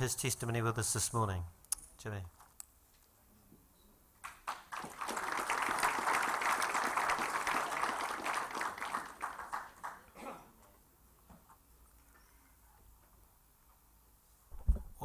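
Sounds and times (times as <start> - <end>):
audience applauding: 4.2 - 10.2.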